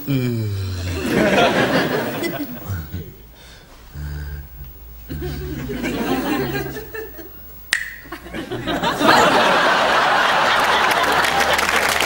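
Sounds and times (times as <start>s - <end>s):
studio audience laughing: 0.9s - 2.6s, 5.2s - 7.3s, 8.1s - 12.0s
sharp click: 7.7s - 8.1s
audience applause: 8.5s - 12.0s.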